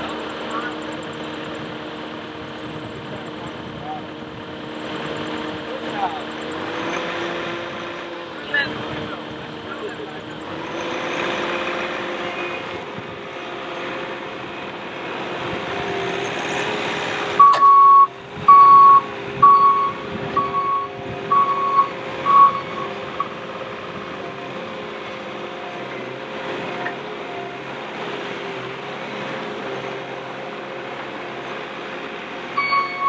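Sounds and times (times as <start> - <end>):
diesel engine running: 0.0 - 33.0
reversing alarm beeps: 17.4 - 23.3, 32.6 - 33.0.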